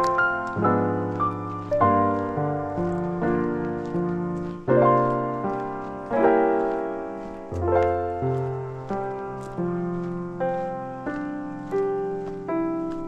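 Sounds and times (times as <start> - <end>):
slow piano chords: 0.0 - 13.0.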